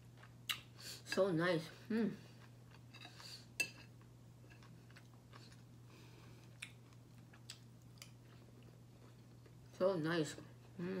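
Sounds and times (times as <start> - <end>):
person chewing: 0.0 - 0.8, 2.2 - 9.7.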